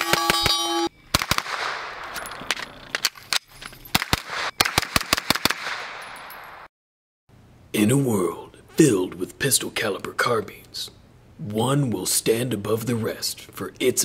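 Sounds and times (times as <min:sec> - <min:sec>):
gunshots with echo: 0:01.1 - 0:02.2, 0:03.9 - 0:06.7.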